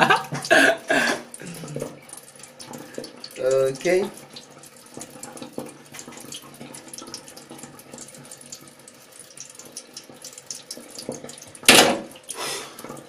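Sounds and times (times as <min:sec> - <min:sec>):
tap water trickling into sink: 0:00.0 - 0:13.0.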